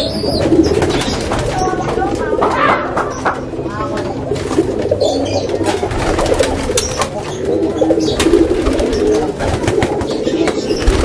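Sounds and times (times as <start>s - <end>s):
pigeons cooing: 0.0s - 11.0s
wings flapping: 0.4s - 3.1s, 5.6s - 11.0s.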